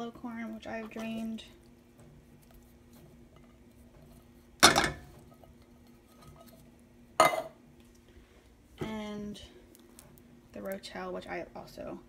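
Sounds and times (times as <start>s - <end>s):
faint steady hum: 0.0s - 12.0s
tin can clanking on frying pan: 4.6s - 5.3s.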